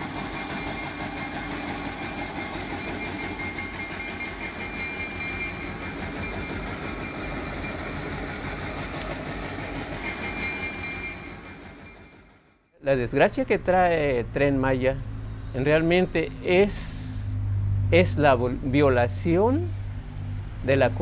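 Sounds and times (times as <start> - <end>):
diesel locomotive engine running: 0.0 - 21.0.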